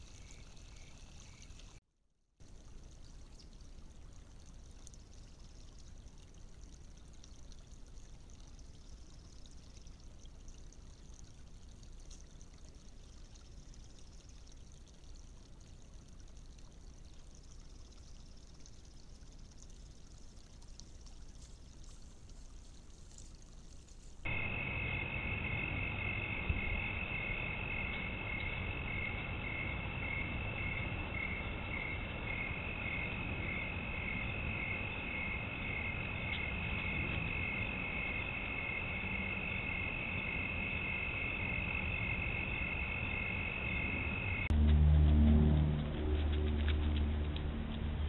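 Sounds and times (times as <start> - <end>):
low buzzing hum: 23.4 - 48.0
crickets trilling: 24.3 - 44.5.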